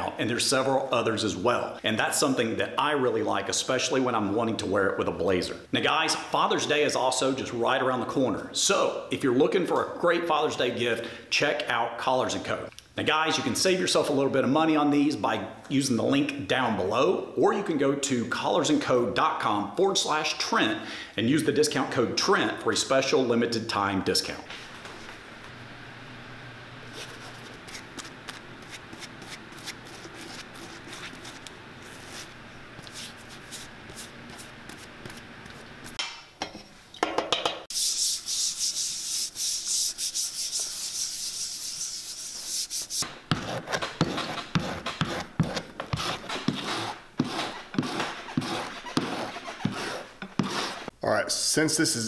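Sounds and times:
brush scrubbing rubber: 0:26.9 - 0:36.0, 0:37.7 - 0:50.9.

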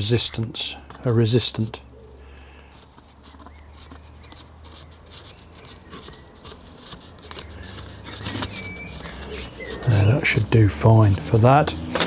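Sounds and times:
rubbing and scratching on wood sheet: 0:00.0 - 0:12.0.

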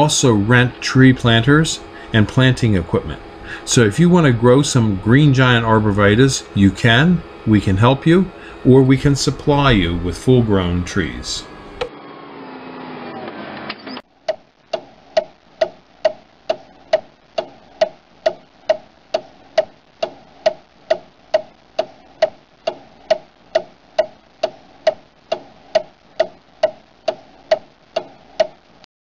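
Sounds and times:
steady ticking: 0:00.0 - 0:11.9, 0:14.0 - 0:28.9.

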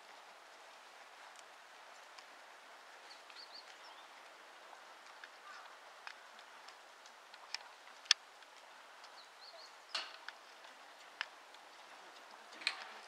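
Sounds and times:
faint bird chirps: 0:03.0 - 0:04.1, 0:09.2 - 0:10.0.

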